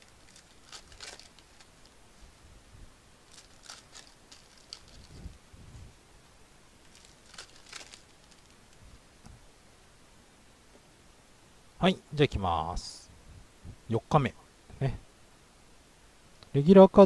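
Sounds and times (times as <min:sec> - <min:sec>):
foil wrappers crinkling: 0:00.0 - 0:02.0, 0:03.2 - 0:05.2, 0:06.8 - 0:08.8.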